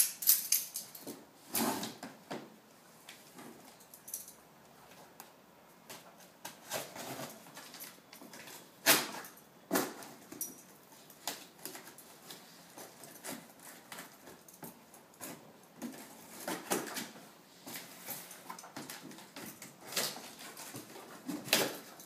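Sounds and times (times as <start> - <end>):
packing tape tearing: 6.4 - 10.1.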